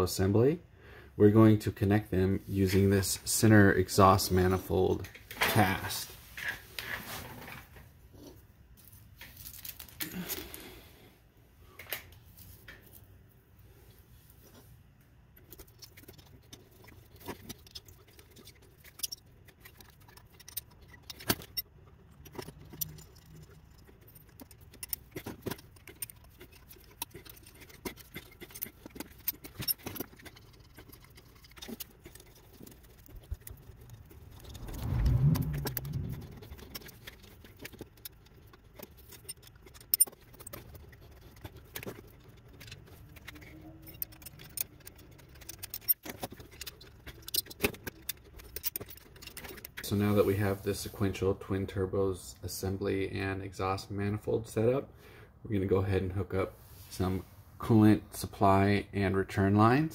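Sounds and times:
low rumble: 34.1 - 37.0
metal parts clinking: 41.3 - 49.8.

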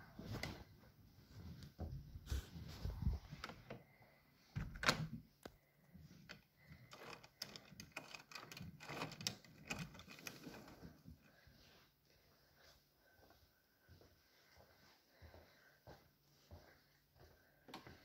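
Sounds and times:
key in door lock: 6.9 - 10.3.

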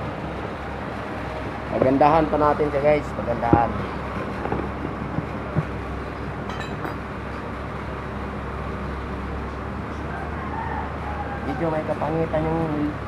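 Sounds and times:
low machine hum: 0.0 - 13.0
faint clink: 6.5 - 7.0.

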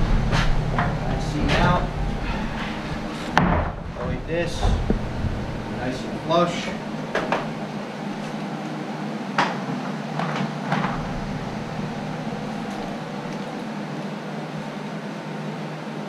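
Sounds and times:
steady low hum: 0.0 - 16.0
wood knocking on wood: 3.3 - 3.9.

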